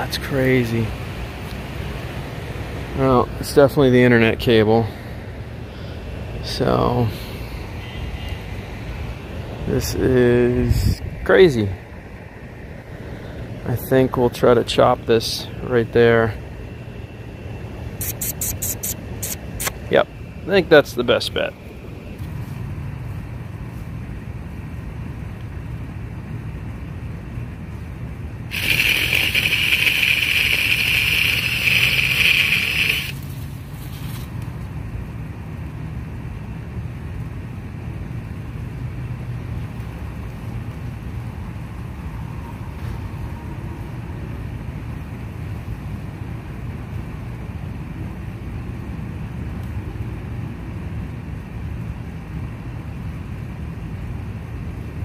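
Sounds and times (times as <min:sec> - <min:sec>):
high buzzing saw: 0:28.5 - 0:33.2.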